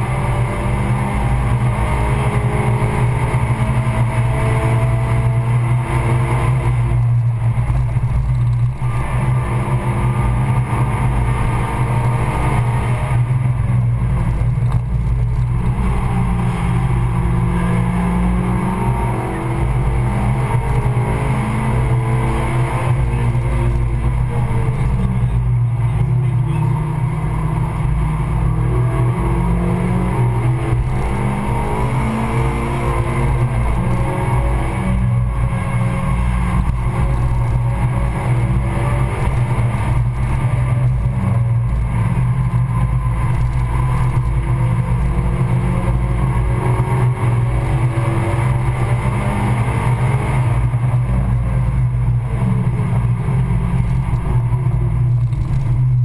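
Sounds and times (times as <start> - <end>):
car engine revving: 0.0 - 56.0
road and wind noise: 0.0 - 56.0.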